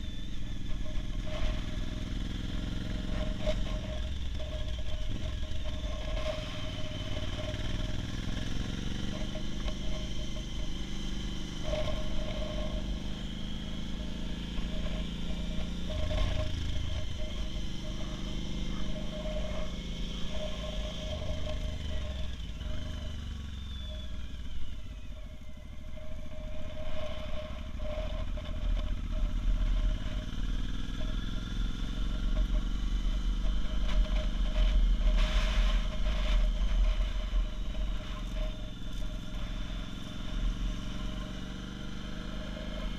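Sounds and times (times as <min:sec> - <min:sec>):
motorcycle engine revving: 0:00.0 - 0:42.9
wind rumble on microphone: 0:24.2 - 0:41.0.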